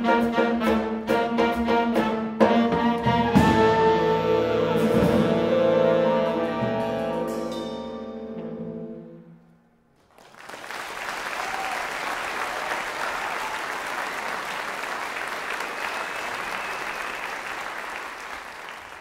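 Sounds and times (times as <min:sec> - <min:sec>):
audience applauding: 0:10.0 - 0:19.0.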